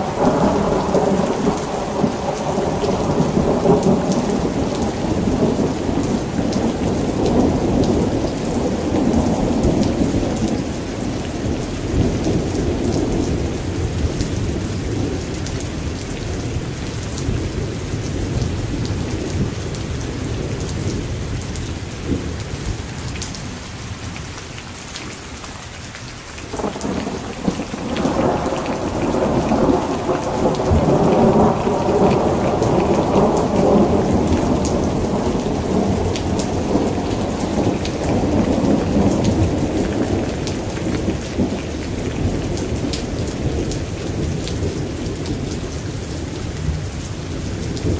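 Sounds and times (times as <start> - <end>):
steady rain: 0.0 - 47.9
rolling thunder: 26.5 - 47.9.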